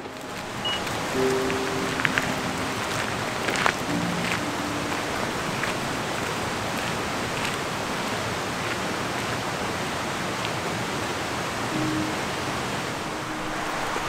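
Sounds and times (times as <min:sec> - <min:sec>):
flowing water rushing: 0:00.0 - 0:14.0.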